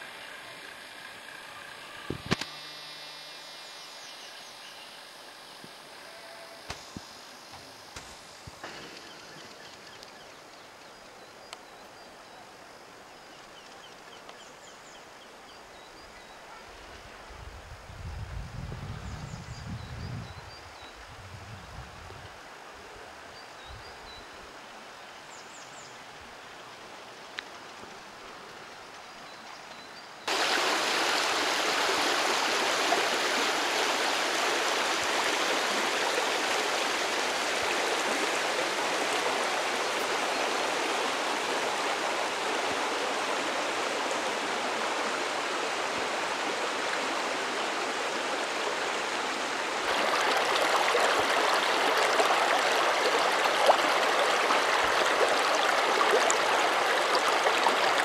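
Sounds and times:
creek flowing over stones: 0:30.3 - 0:58.0.

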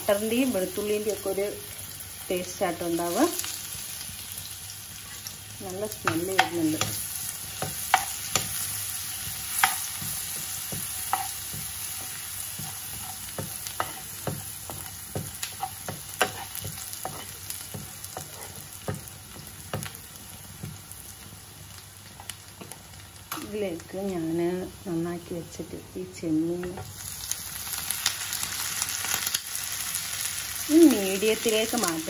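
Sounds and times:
garlic sizzling in a pan: 0:00.0 - 0:32.0
metal spoon scraping a pan: 0:06.1 - 0:19.0.

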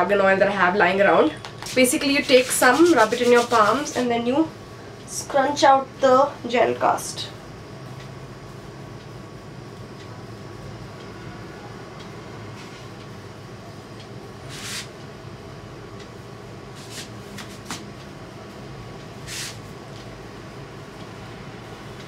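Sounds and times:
steady low hum: 0:00.0 - 0:22.0
stiff hair crackling when scrunched: 0:01.6 - 0:04.1.

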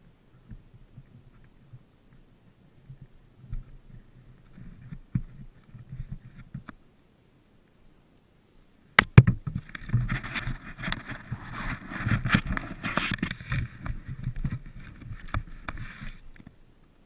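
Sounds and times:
hands scraping and rubbing helmet: 0:02.9 - 0:06.8, 0:09.4 - 0:16.6.

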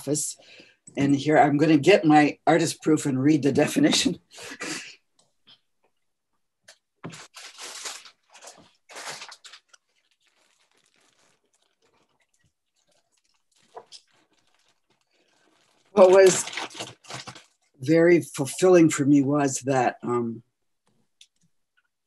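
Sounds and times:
paper and objects rustling: 0:06.7 - 0:17.8.

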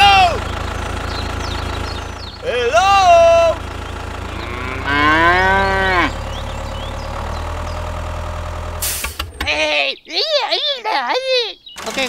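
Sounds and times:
low engine rumble: 0:00.0 - 0:09.8
cow mooing: 0:04.2 - 0:06.3.

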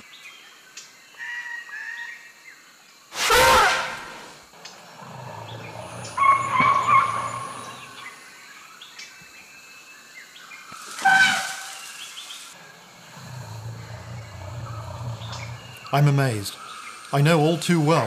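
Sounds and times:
elephants trumpeting: 0:03.2 - 0:08.1, 0:11.0 - 0:11.8, 0:12.6 - 0:16.2.

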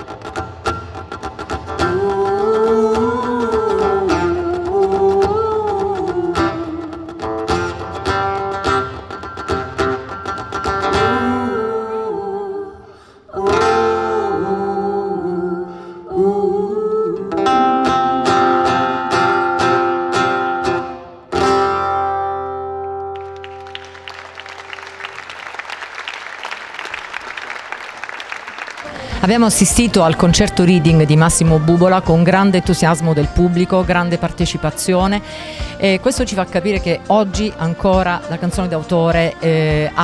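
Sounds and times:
acoustic guitar strumming: 0:00.0 - 0:12.1, 0:13.4 - 0:16.0, 0:17.2 - 0:25.2, 0:28.9 - 0:40.0
person singing: 0:01.8 - 0:07.4, 0:10.8 - 0:19.8, 0:28.8 - 0:40.0
audience applause: 0:23.1 - 0:30.0.

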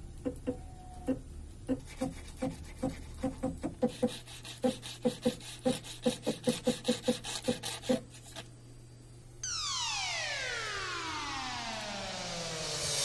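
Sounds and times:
stepper motor humming in steps: 0:09.4 - 0:13.0.

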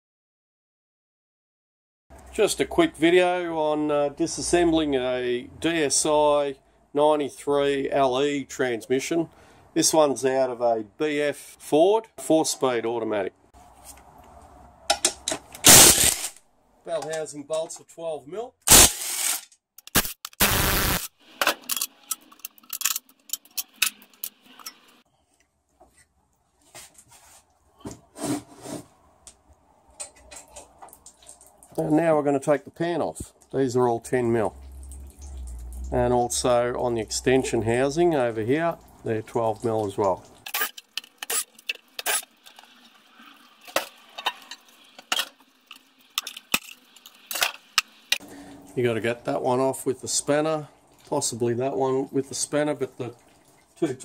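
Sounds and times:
metal bolts and tools clinking: 0:21.4 - 0:25.0.

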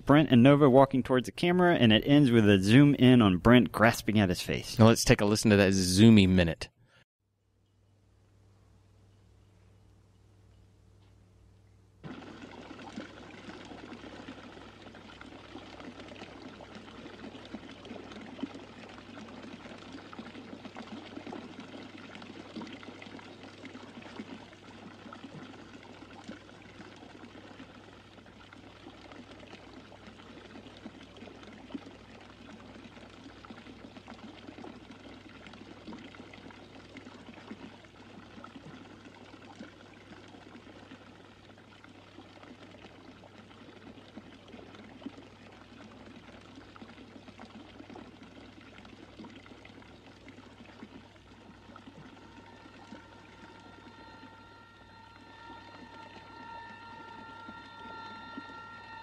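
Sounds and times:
low steady hum: 0:00.0 - 0:59.0
fountain water gushing: 0:12.0 - 0:59.0.

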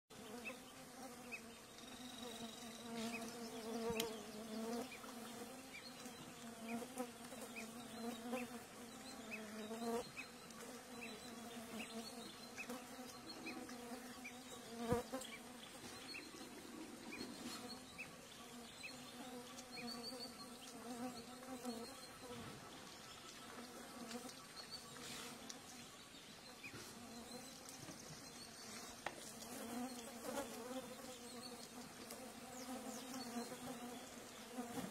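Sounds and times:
flying insects buzzing: 0:00.2 - 0:34.9.

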